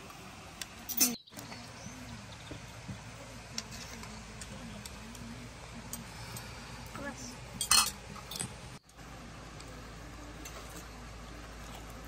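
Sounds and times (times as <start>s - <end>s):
metal spoon clinking on platter: 7.6s - 8.5s.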